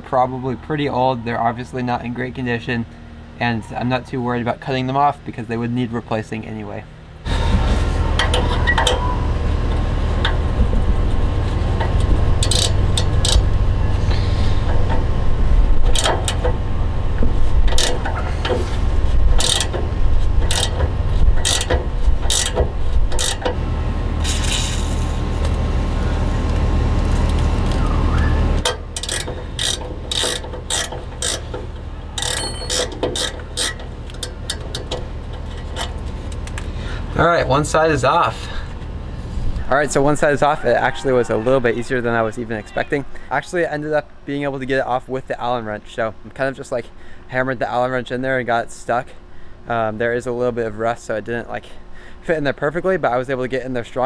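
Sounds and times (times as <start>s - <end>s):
low steady hum: 0.0s - 54.0s
ratcheting wrench clicking: 11.8s - 13.5s, 15.8s - 16.5s, 17.7s - 18.6s, 19.3s - 23.6s, 28.6s - 35.9s.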